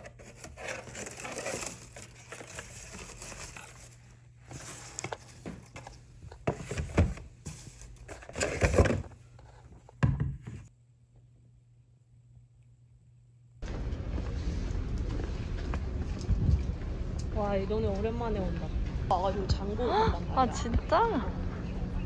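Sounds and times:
paper and cardboard rustling: 0.0 - 9.9.

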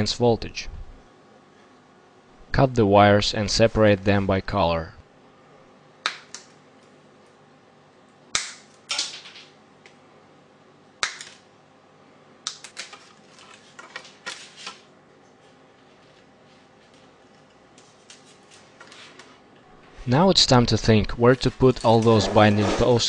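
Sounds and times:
clicks and rustles of wires: 12.5 - 19.6.

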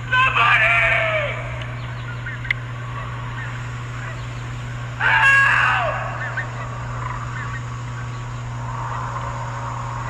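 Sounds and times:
scream-like cry: 0.0 - 1.6, 5.0 - 7.4, 8.4 - 10.0
steady low hum: 0.0 - 10.0.

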